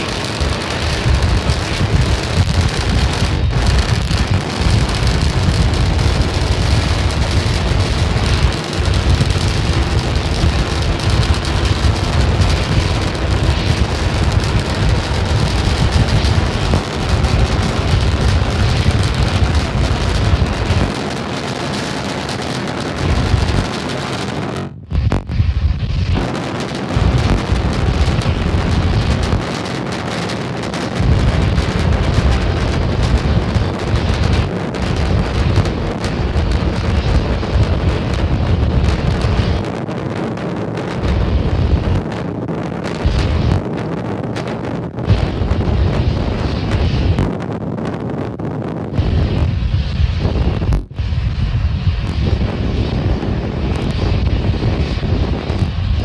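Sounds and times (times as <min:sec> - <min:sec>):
rocket engines roaring: 0:00.0 - 0:56.0.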